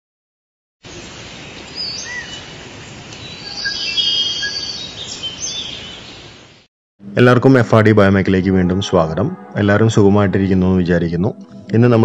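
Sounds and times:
steady background hiss: 0.9 - 5.3
birds whistling and chirping: 1.8 - 2.4, 3.2 - 6.3
bird trilling calls: 3.3 - 6.2.

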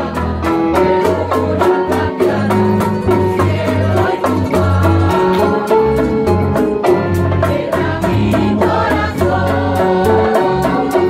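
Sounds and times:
hand drums: 0.0 - 11.0
keyboard: 0.0 - 11.0
strummed guitars: 0.0 - 11.0.

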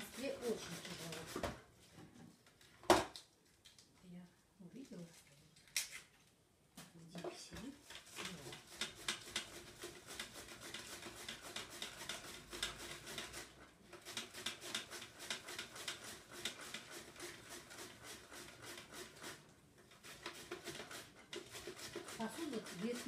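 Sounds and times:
cabbage scraping on shredder: 0.0 - 1.6, 7.8 - 23.0.

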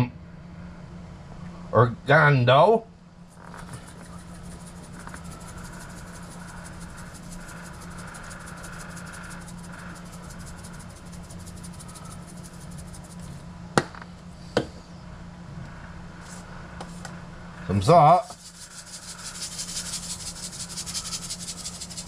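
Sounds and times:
low hum: 0.0 - 22.0
dried herbs rasping from shaker: 3.3 - 13.4, 16.2 - 22.0.

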